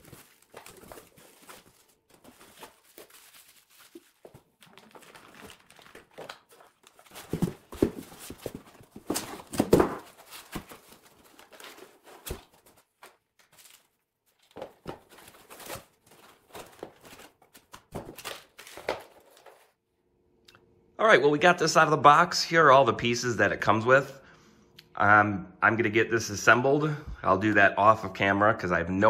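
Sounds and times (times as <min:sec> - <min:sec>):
foam packaging scraping: 0:00.0 - 0:13.8.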